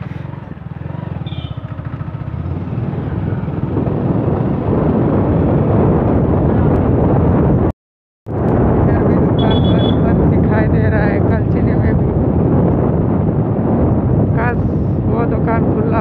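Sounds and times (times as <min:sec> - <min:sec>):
motorcycle engine running: 0:00.0 - 0:07.4
wind and road noise: 0:00.0 - 0:07.7, 0:08.3 - 0:16.0.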